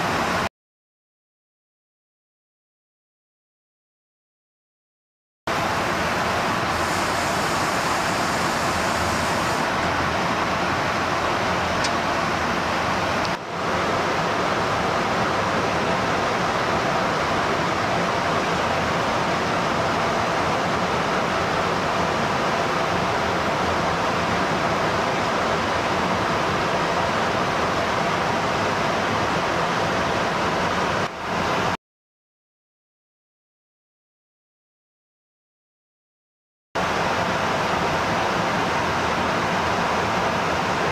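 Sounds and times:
rushing airflow and engines: 0.0s - 0.5s, 5.5s - 31.8s, 36.8s - 40.9s.

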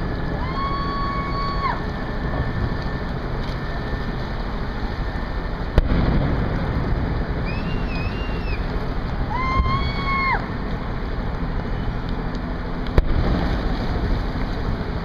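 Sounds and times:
water noise: 0.0s - 15.0s
sharp crack: 5.7s - 10.7s, 12.0s - 14.6s
high whistle: 7.4s - 8.7s.

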